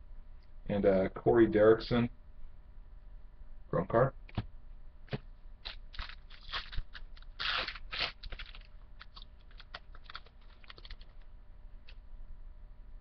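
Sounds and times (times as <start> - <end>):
cards rustling and sliding: 5.1 - 11.2
wrapper crinkling: 5.6 - 11.3.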